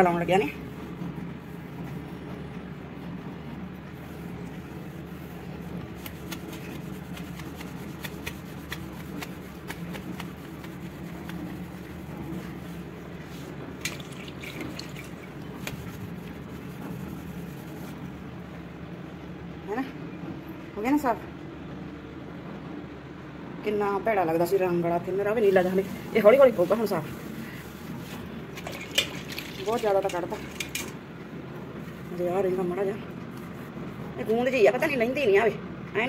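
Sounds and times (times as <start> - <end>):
wet cloth scrubbing tiles: 4.0 - 18.0, 25.6 - 31.0.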